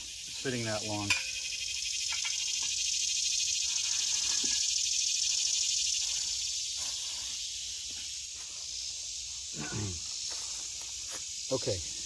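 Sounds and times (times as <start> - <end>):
insects buzzing: 0.0 - 12.0
air hissing into tire: 3.5 - 8.0.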